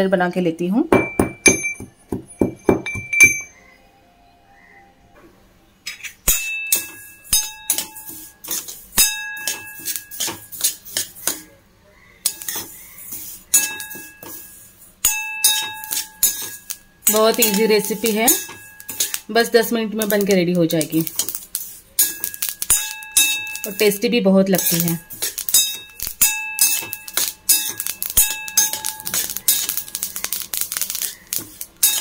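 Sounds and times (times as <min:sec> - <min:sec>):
metal pestle pounding in mortar: 0:00.9 - 0:03.5
steel spoon scraping a steel bowl: 0:06.3 - 0:11.5, 0:12.2 - 0:32.0.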